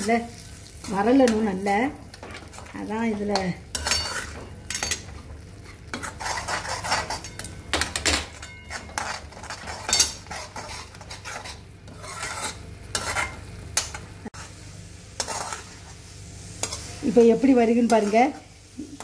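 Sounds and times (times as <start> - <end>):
metal spatula scraping metal pan: 2.1 - 7.5, 8.4 - 13.4, 15.2 - 16.0, 16.6 - 18.4.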